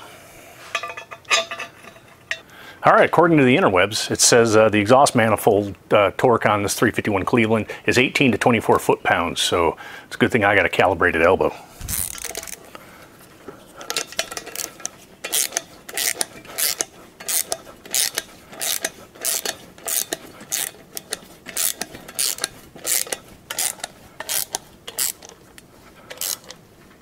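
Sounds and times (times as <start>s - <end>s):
socket ratchet clicking: 11.9s - 12.6s, 13.9s - 26.6s.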